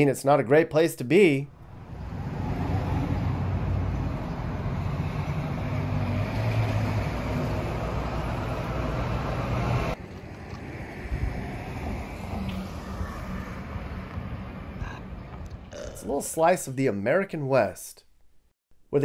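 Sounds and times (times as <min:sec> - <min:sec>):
street traffic rumble: 0:01.5 - 0:16.0.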